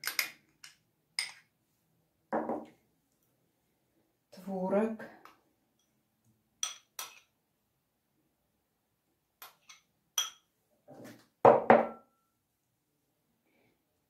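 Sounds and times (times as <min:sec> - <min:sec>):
metal spoon clinking on glass bowl: 0:06.6 - 0:07.3, 0:09.4 - 0:10.5.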